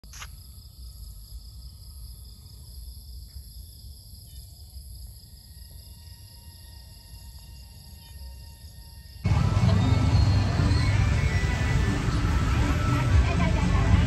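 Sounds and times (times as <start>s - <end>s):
insects trilling: 0.0s - 9.3s
continuous low rumble: 9.2s - 14.0s.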